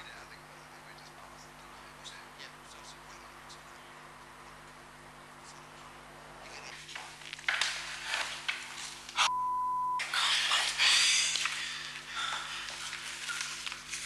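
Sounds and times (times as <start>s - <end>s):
people whispering: 0.0s - 4.6s, 5.4s - 7.0s, 10.0s - 13.3s
censor bleep: 9.3s - 10.0s.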